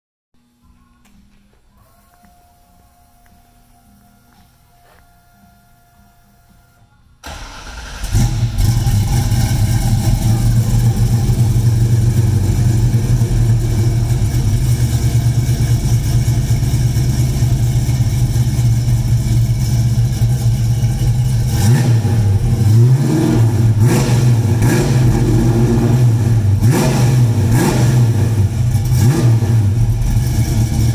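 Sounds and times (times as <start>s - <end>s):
car engine idling: 7.2s - 30.9s
car engine revving: 7.3s - 30.9s.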